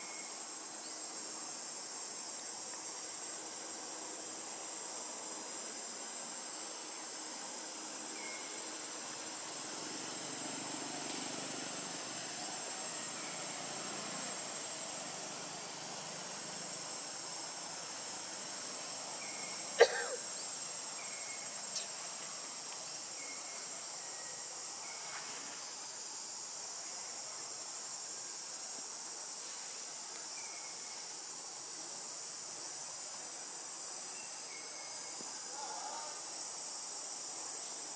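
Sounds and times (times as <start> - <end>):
insects chorus: 0.0 - 37.9.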